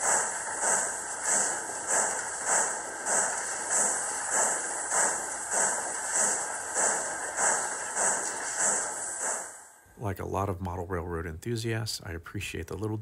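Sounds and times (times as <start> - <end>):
hissy steam chuffs from speaker: 0.0 - 9.8.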